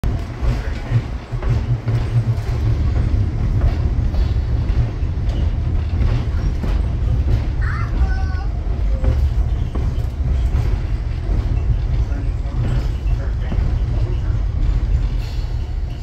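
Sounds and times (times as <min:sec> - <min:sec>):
train car rumbling on track: 0:00.0 - 0:16.0.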